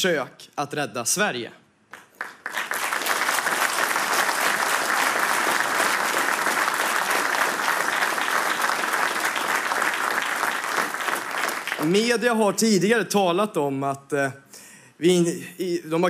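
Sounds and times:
audience applauding: 1.9 - 12.1.

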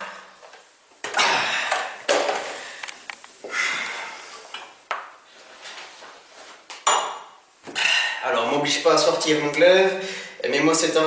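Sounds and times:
glassware and dishes clinking: 6.8 - 7.4.

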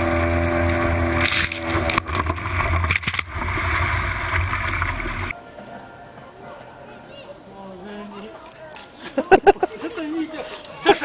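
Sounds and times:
motor hum: 0.0 - 5.3.

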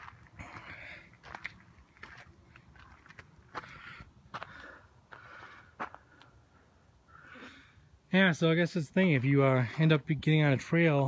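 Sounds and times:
footsteps on gritty dirt trail: 0.0 - 6.4, 9.1 - 11.0.

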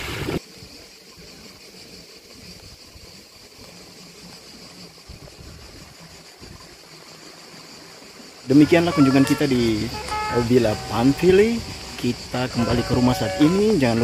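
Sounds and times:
faint high-pitched hiss: 0.0 - 14.0.

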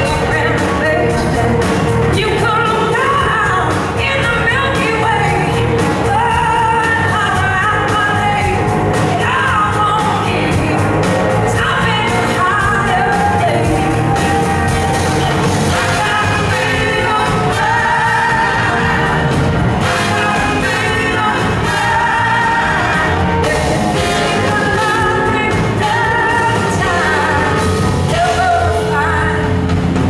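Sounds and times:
woman singing: 0.0 - 29.7
drum kit: 0.0 - 30.0.

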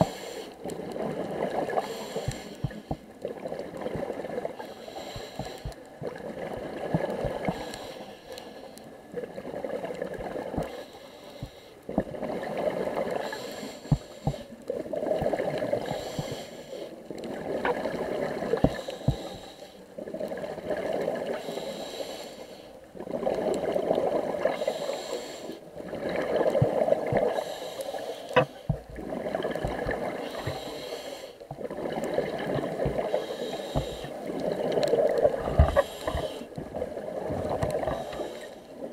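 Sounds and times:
regulator inhale hiss: 0.0 - 0.7, 1.8 - 3.1, 4.6 - 5.8, 7.4 - 8.9, 10.7 - 11.8, 13.2 - 14.6, 15.8 - 17.0, 18.6 - 19.8, 21.3 - 22.8, 24.5 - 25.6, 27.3 - 28.7, 30.2 - 31.5, 33.0 - 34.3, 35.5 - 36.5, 37.8 - 38.8
exhale bubbling and gurgling: 0.0 - 38.9.

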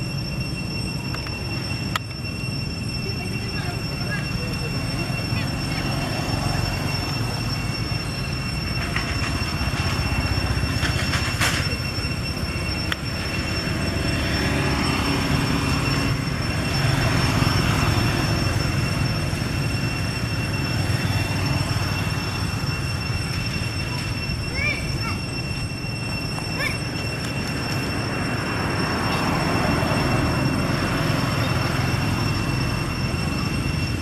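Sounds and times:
thin high whine: 0.0 - 34.0
traffic rumble: 0.0 - 34.0.

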